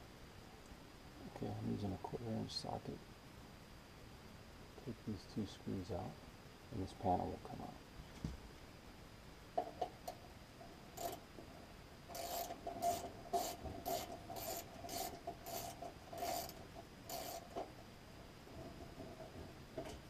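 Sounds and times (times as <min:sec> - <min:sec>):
socket wrench rasping: 0:11.0 - 0:11.2, 0:12.1 - 0:17.6.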